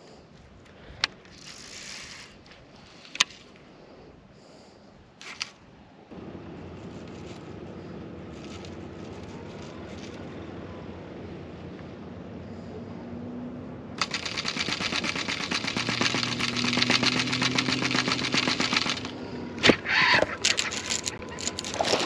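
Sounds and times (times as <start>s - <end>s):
sharp clicks: 14.0s - 22.0s.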